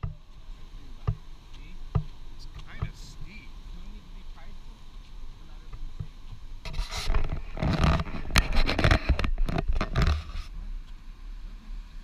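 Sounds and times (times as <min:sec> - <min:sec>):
sharp knocks: 0:01.9 - 0:03.0
camera handling scraping and rustling: 0:06.6 - 0:10.5.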